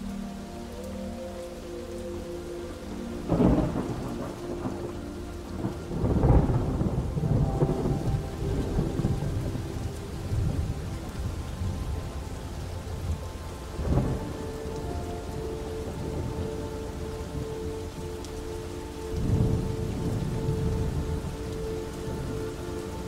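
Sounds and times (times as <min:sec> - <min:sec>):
steady rain: 0:00.0 - 0:23.0
thunder: 0:03.3 - 0:05.0, 0:05.6 - 0:11.9.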